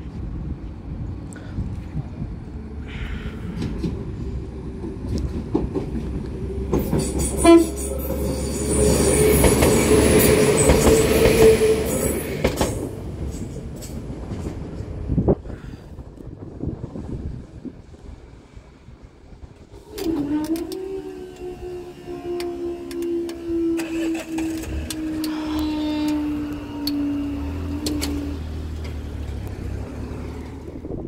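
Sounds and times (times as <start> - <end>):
train passing at speed: 0.0 - 31.0
train horn blast: 6.7 - 12.3, 19.9 - 28.5.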